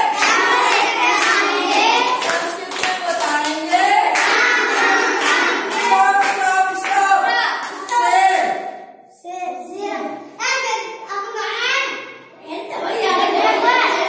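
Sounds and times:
children singing a chant: 0.0s - 8.9s, 9.6s - 14.0s.

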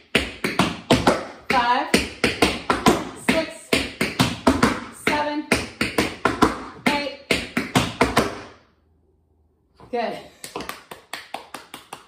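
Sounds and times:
tap shoes tapping on board: 0.2s - 8.4s.

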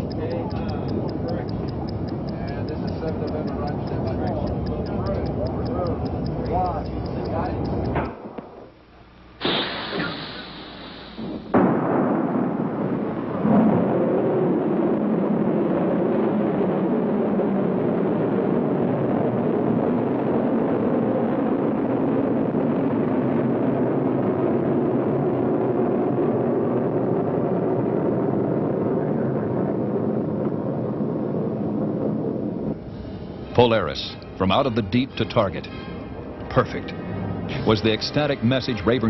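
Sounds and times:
rocket motor blast: 9.4s - 28.8s
steady rocket rushing noise: 9.4s - 39.0s.

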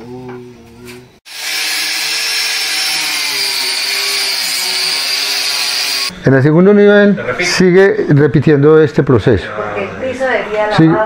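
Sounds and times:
angle grinder grinding bamboo: 1.3s - 6.1s.

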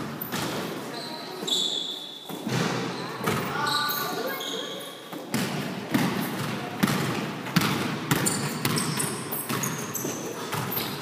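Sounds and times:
basketball bouncing on gym floor: 0.0s - 0.8s, 2.3s - 3.8s, 5.2s - 11.0s
sneakers squeaking on court: 0.1s - 11.0s.

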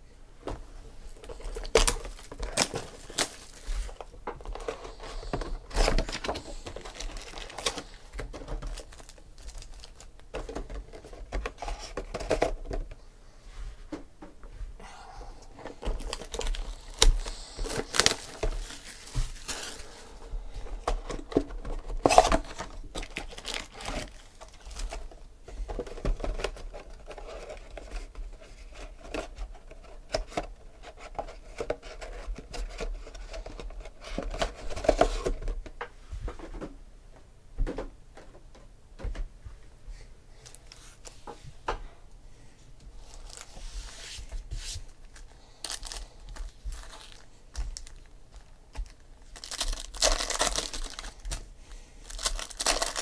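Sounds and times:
foil packs crinkling: 1.1s - 12.8s, 15.6s - 28.2s, 43.0s - 43.6s, 44.8s - 53.0s.

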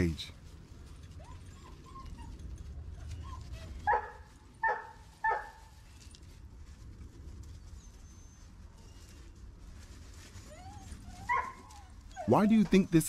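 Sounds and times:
puppy whining: 1.0s - 4.1s, 7.6s - 9.4s, 10.2s - 12.9s
puppy barking: 3.9s - 5.6s, 11.3s - 11.6s.

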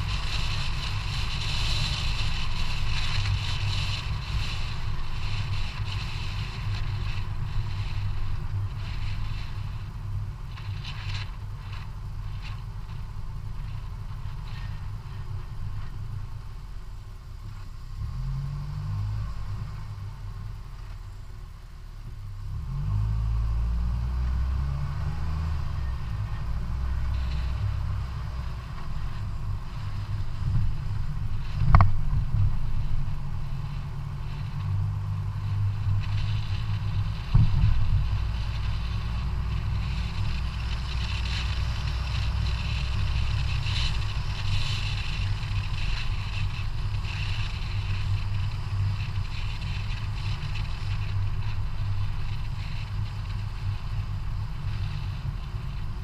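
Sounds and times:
tyre road noise: 0.0s - 56.0s
wind buffeting microphone: 25.8s - 56.0s.

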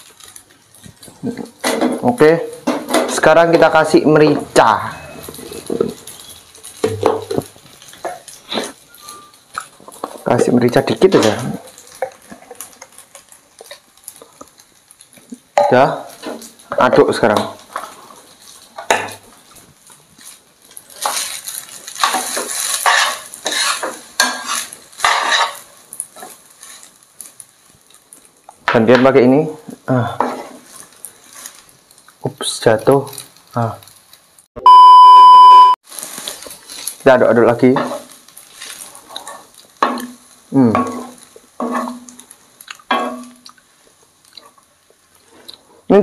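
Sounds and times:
spatula stirring spaghetti in pan: 5.1s - 28.6s, 29.7s - 32.2s, 35.9s - 45.7s
spatula scraping frying pan: 20.2s - 27.4s, 30.1s - 31.7s, 37.8s - 43.4s.

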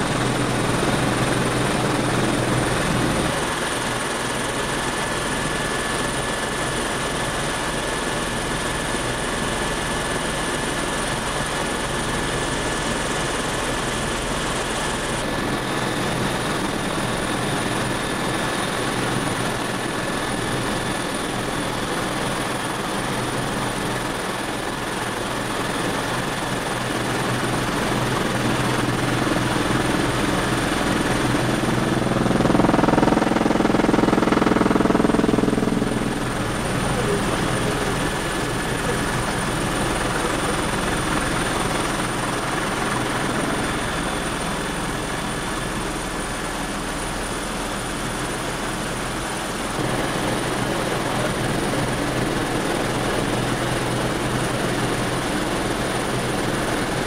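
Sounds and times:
helicopter engine and rotor drone: 0.0s - 57.0s
high whining tones: 31.6s - 37.4s.

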